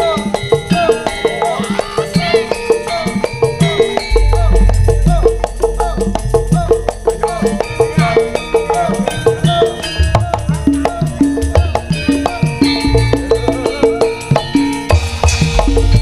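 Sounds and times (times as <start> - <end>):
gamelan struck notes: 0.0 - 16.0
drumming: 3.0 - 16.0
deep sustained low notes: 4.1 - 10.6.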